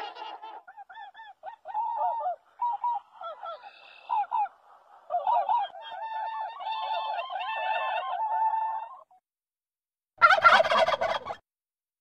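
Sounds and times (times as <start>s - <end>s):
geese honking: 10.2s - 11.4s.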